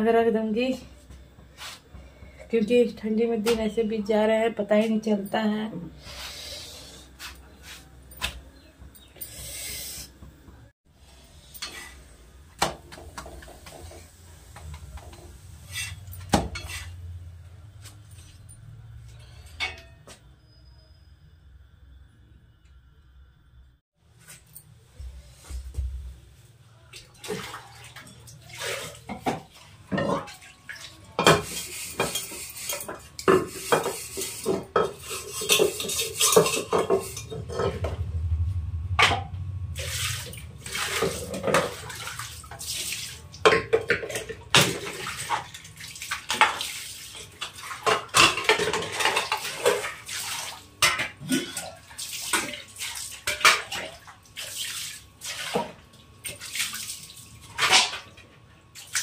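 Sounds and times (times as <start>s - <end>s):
metal pots clanking and scraping: 11.2s - 12.2s, 12.9s - 17.2s, 17.9s - 20.6s, 28.0s - 30.4s, 31.0s - 45.5s, 47.2s - 50.1s
water splashing: 39.7s - 48.1s.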